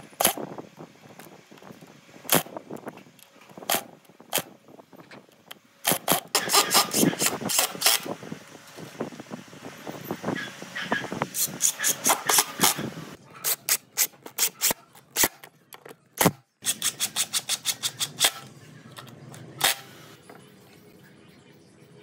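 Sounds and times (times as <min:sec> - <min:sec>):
impact driver driving screws: 0:05.8 - 0:08.1, 0:11.3 - 0:15.5, 0:16.2 - 0:18.5.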